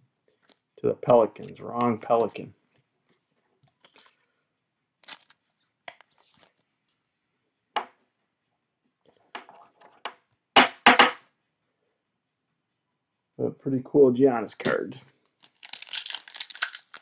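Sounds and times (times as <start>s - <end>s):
wrapper crinkling and tearing: 5.0s - 6.6s, 15.2s - 17.0s.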